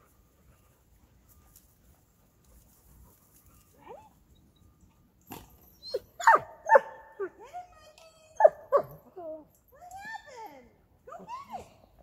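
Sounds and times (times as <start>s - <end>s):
dog whining: 5.6s - 6.4s
dog barking and yelping: 5.8s - 7.3s, 8.4s - 9.0s.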